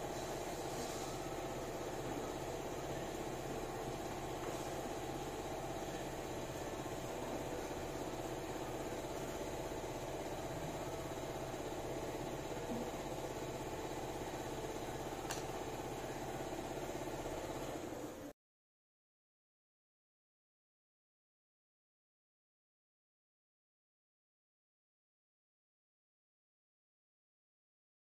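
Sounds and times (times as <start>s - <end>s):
motor humming: 0.0s - 18.3s.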